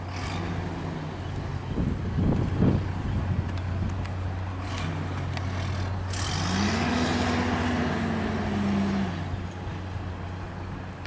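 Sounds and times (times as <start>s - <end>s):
vehicle engine revving: 0.0s - 1.2s, 4.6s - 9.9s
low traffic rumble: 0.0s - 11.0s.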